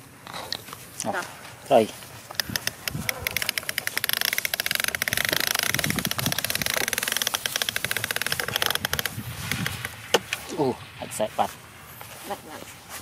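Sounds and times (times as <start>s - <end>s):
toy truck motor whirring: 2.4s - 9.7s.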